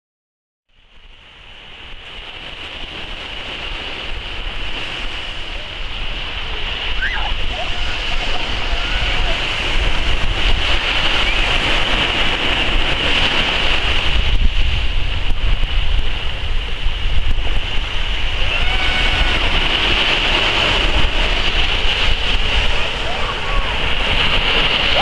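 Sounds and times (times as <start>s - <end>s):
small waves breaking on beach: 0.7s - 25.0s
wind buffeting microphone: 0.9s - 25.0s.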